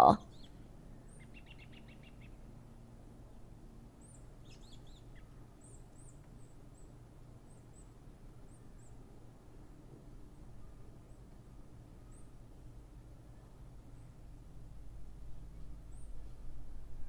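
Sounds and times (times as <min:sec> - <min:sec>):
steady low hum: 0:00.0 - 0:17.0
faint bird chirps: 0:04.0 - 0:09.0, 0:12.0 - 0:12.4.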